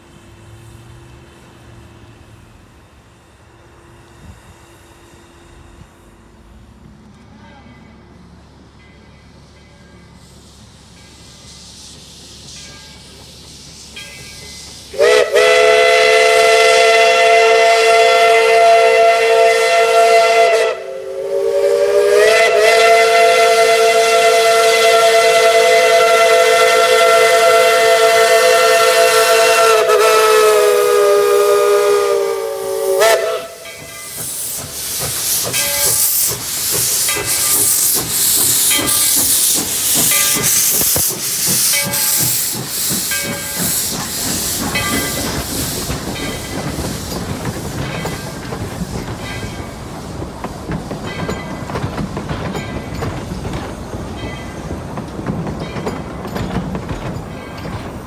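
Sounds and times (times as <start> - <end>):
steam hissing from cylinder cocks: 8.2 - 58.0
steam locomotive exhaust chuffs: 8.2 - 58.0
steam whistle blasts: 14.9 - 33.8.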